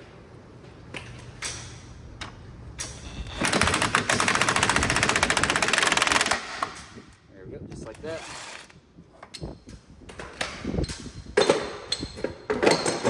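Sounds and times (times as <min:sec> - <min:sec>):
wind noise: 0:08.8 - 0:12.4.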